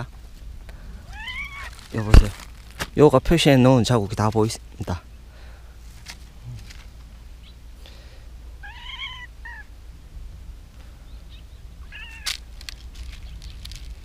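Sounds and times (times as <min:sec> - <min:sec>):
cat meowing: 0:01.0 - 0:02.2, 0:08.6 - 0:09.7, 0:11.8 - 0:12.3.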